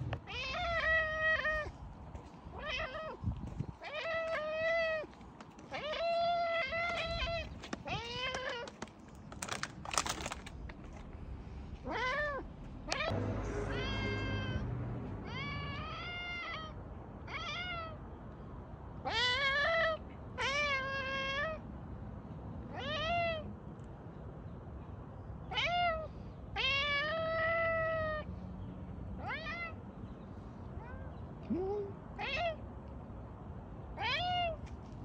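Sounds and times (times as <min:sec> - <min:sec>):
cat meowing: 0:00.2 - 0:01.7, 0:02.5 - 0:03.2, 0:11.8 - 0:14.6, 0:15.2 - 0:18.0, 0:34.0 - 0:34.6.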